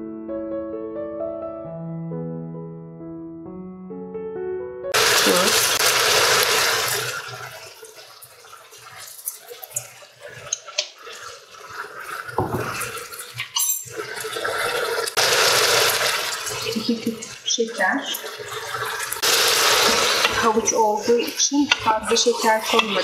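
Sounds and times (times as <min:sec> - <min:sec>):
leeks sizzling in hot oil: 0:05.0 - 0:23.0.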